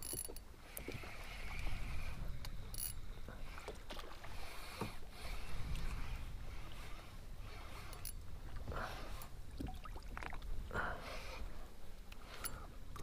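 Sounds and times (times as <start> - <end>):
water sloshing against hull: 0.0 - 13.0
wind rumble on microphone: 0.8 - 13.0.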